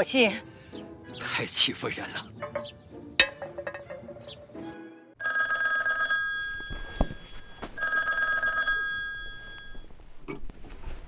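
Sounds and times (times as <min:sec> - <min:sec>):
telephone bell ringing: 0:05.2 - 0:09.9.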